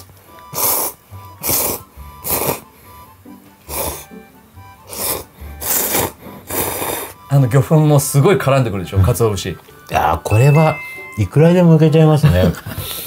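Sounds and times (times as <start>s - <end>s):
light background music: 0.0s - 13.0s
person slurping noodles: 0.5s - 2.7s, 3.7s - 4.1s, 4.9s - 7.2s.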